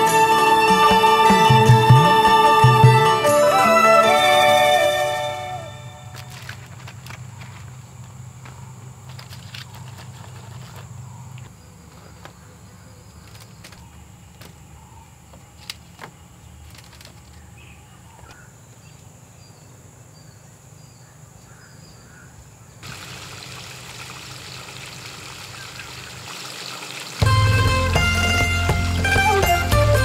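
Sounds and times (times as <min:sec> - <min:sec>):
insect drone: 0:18.6 - 0:27.2
running water hiss: 0:22.8 - 0:27.3.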